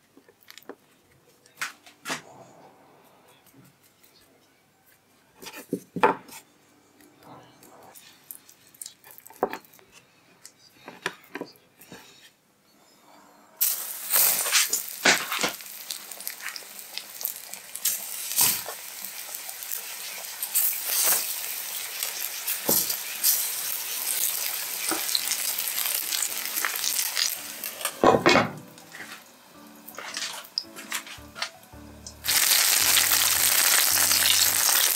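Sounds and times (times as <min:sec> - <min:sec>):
food sizzling in oil: 0:13.6 - 0:28.1, 0:28.7 - 0:34.9
oil popping and spattering: 0:32.2 - 0:34.9.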